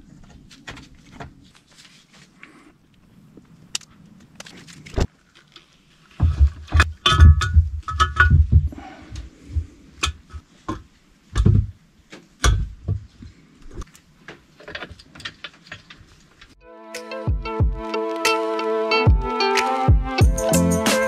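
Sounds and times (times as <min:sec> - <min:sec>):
heavy thumps: 0:06.2 - 0:11.8.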